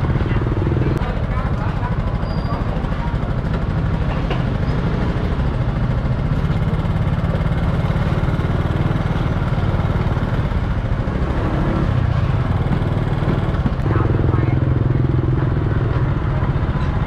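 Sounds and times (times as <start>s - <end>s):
small motorbike engine idling: 0.0s - 11.0s.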